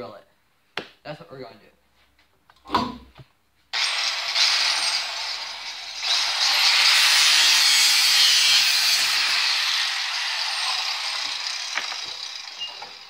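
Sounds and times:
power tool grinding steel: 0:03.8 - 0:13.0.

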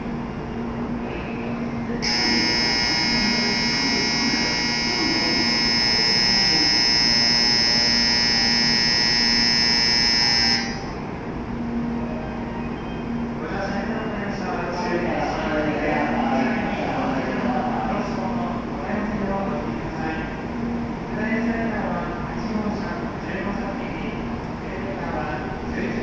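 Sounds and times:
platform departure bell ringing: 0:02.0 - 0:11.2.

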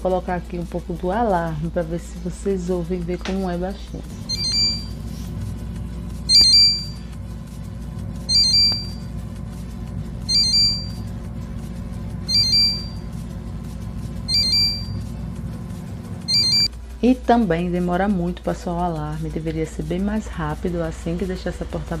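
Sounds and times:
low hum: 0:03.6 - 0:17.7
refrigerator alarm beeping: 0:04.2 - 0:05.2, 0:06.2 - 0:07.2, 0:08.2 - 0:09.2, 0:10.1 - 0:11.3, 0:12.2 - 0:13.2, 0:14.2 - 0:15.3, 0:16.1 - 0:16.7.

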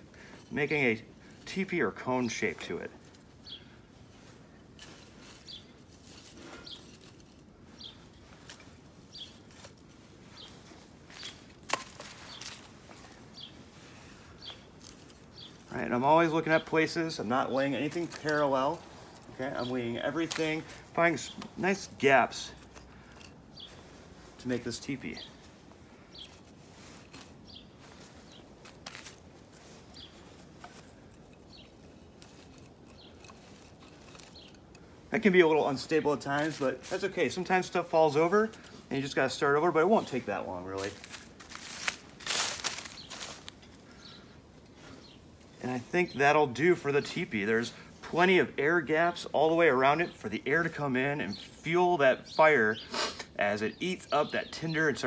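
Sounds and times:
small bird chirping: 0:03.4 - 0:04.3, 0:05.2 - 0:09.6, 0:12.1 - 0:13.6, 0:14.2 - 0:15.8, 0:22.5 - 0:24.3, 0:25.0 - 0:28.5, 0:29.6 - 0:35.0.

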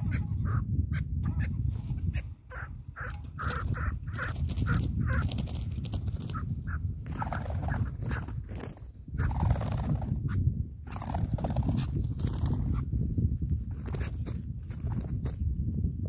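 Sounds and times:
partridges calling: 0:00.0 - 0:08.3.

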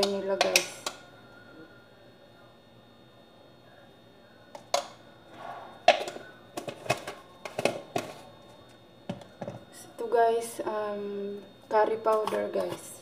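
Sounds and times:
plastic caps clicking and knocking: 0:04.6 - 0:05.0, 0:05.8 - 0:08.2.

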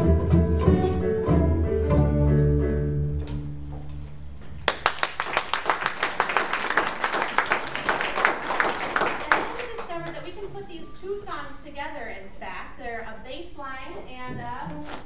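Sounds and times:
audience applause: 0:04.6 - 0:10.2.

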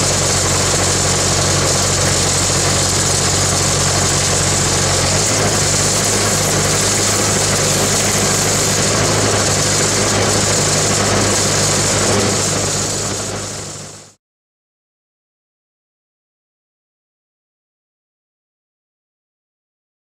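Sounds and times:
engine-driven welding machine running: 0:00.0 - 0:14.2.

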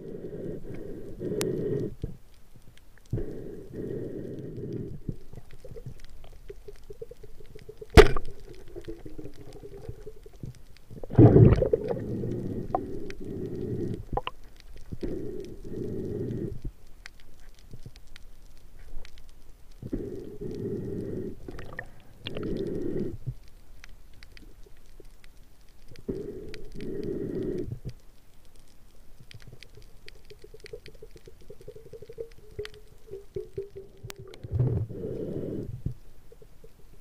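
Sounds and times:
diver breathing through regulator: 0:00.0 - 0:02.2, 0:03.0 - 0:06.0, 0:11.0 - 0:14.2, 0:14.8 - 0:16.6, 0:19.8 - 0:23.4, 0:26.0 - 0:28.0, 0:30.4 - 0:36.0
faint sharp clicks: 0:00.6 - 0:34.5
bubbles: 0:05.0 - 0:13.0, 0:13.6 - 0:14.4, 0:21.4 - 0:22.6, 0:29.4 - 0:35.2.

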